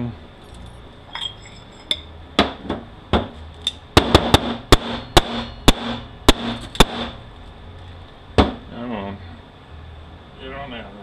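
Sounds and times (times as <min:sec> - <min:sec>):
sharp metallic knocks: 0:04.0 - 0:07.2.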